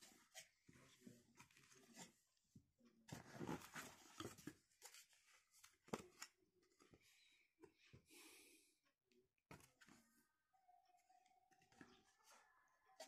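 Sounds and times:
paper and plastic rustling: 3.1 - 7.0.

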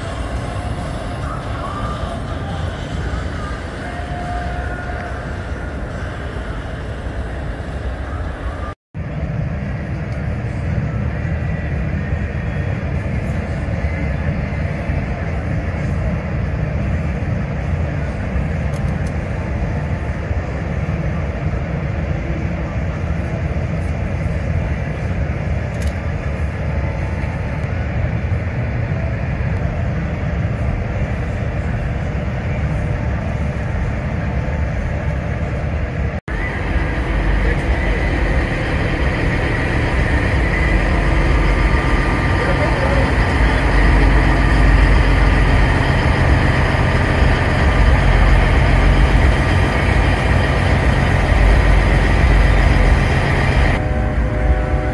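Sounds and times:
diesel trucks idling: 0.0 - 8.7, 34.4 - 54.7.

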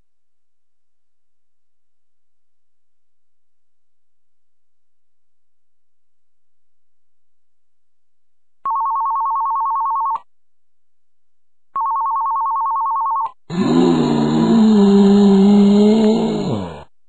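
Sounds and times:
telephone ringing: 8.7 - 10.3, 11.8 - 13.4.

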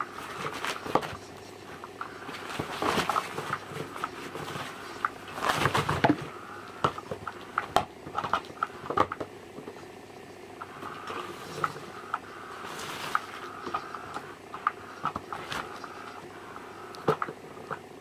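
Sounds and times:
plastic bag rustling: 0.0 - 7.5, 10.8 - 16.3.

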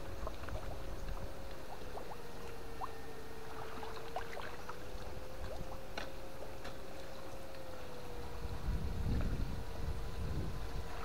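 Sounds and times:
small water splashes: 0.0 - 7.7
electric fish-shocker humming: 0.0 - 11.0.

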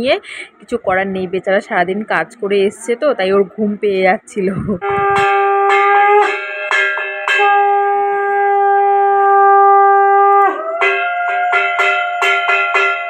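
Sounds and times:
bell struck: 4.8 - 8.6, 10.8 - 13.0
conch shell blown: 4.8 - 13.0.

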